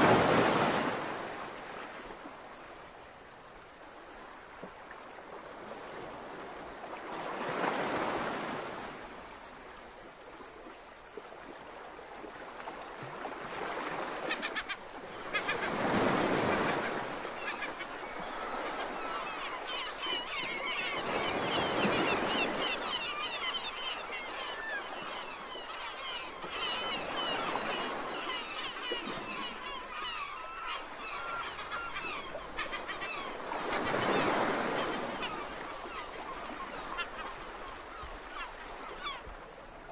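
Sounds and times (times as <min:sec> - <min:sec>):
rushing sea and air noise: 0:00.0 - 0:25.6
gulls calling: 0:13.8 - 0:39.3.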